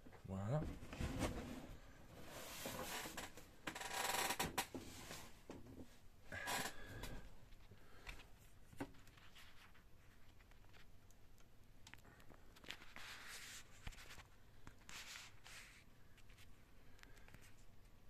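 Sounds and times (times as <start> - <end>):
rustling scrapes: 0.8 - 3.3, 12.6 - 16.5.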